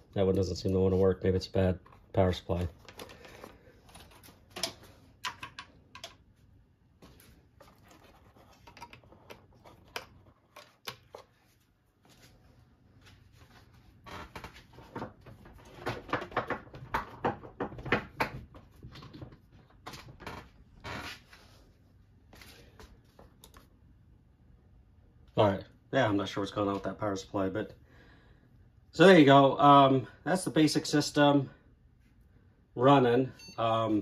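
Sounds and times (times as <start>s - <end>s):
hands handling circuit boards: 0.1s - 6.4s.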